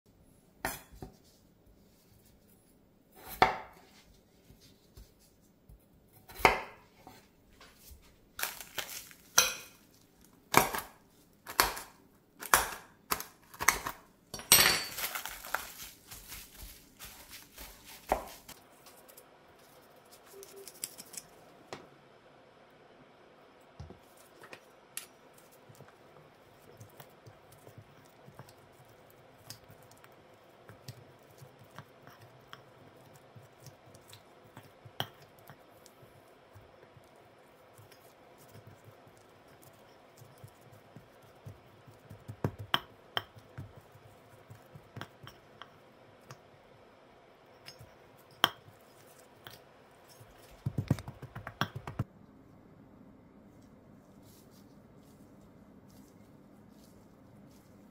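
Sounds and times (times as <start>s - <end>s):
potato squashing: 8.4s - 14.0s, 14.9s - 21.4s.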